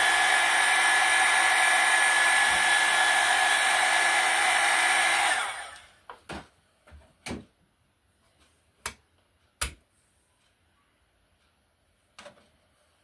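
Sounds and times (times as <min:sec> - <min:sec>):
pottery wheel motor whining: 0:00.0 - 0:06.0.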